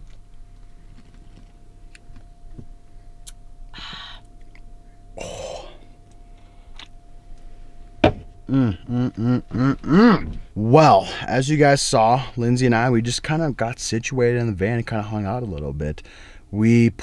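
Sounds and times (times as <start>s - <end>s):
faint steady hum: 0.0s - 17.0s
person gulping and exhaling: 5.2s - 5.9s.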